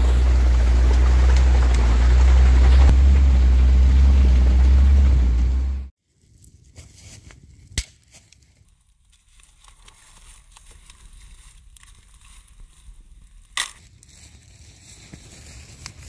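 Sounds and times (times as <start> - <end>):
campfire crackling: 0.0 - 5.9.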